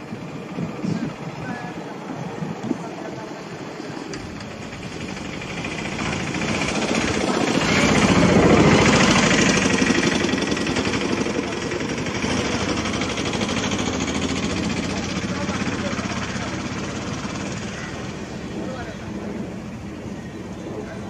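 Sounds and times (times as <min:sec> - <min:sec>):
pulsing engine rumble: 0:00.0 - 0:21.0.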